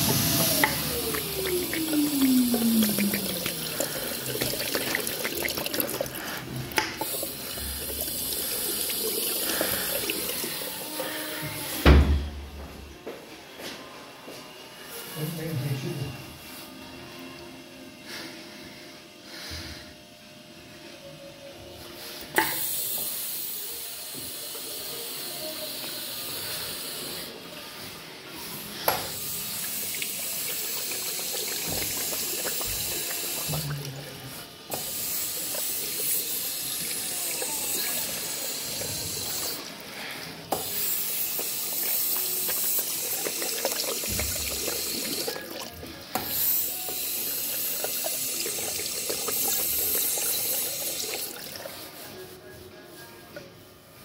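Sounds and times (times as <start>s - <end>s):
tap water running into basin: 0.0s - 11.2s, 29.1s - 39.8s, 40.4s - 51.7s.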